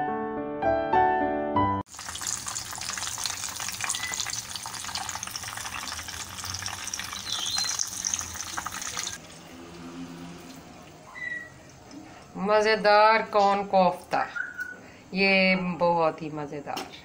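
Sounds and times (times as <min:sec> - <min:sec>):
food deep-frying in oil: 0:01.9 - 0:12.0.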